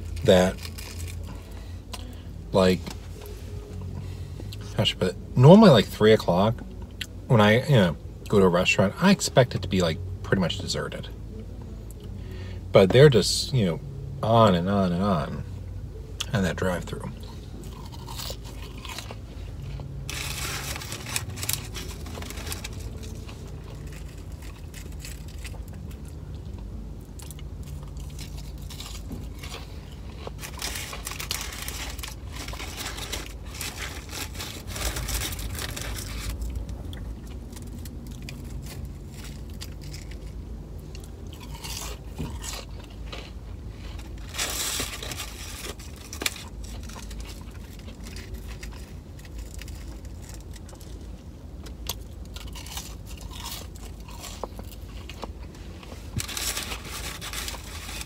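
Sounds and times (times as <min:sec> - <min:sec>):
person chewing crunchy food: 0:00.0 - 0:02.2, 0:16.2 - 0:58.0
steady low hum: 0:00.0 - 0:58.0.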